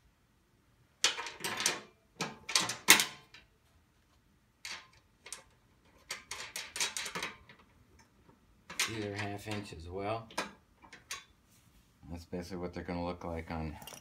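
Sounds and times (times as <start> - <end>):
metal clinking and rattling: 1.0 - 3.5, 4.6 - 8.1, 8.7 - 9.7, 13.7 - 14.0.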